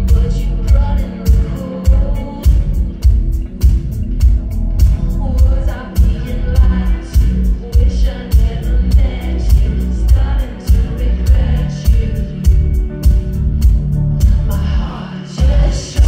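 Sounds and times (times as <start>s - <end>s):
woman singing: 0.0s - 3.0s, 5.0s - 12.8s, 14.5s - 16.0s
live band playing dance-pop: 0.0s - 16.0s.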